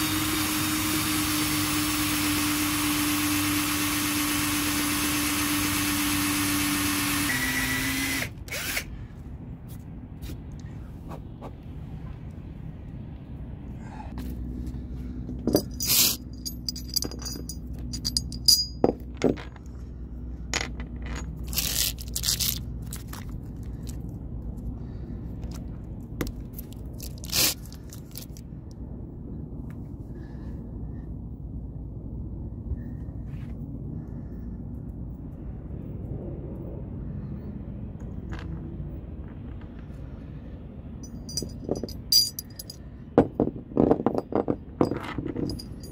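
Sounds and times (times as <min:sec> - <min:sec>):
steady low rumble: 0:08.3 - 0:45.9
metal screws clinking and scraping: 0:15.4 - 0:19.8, 0:20.5 - 0:24.0, 0:41.0 - 0:42.8, 0:43.8 - 0:45.9.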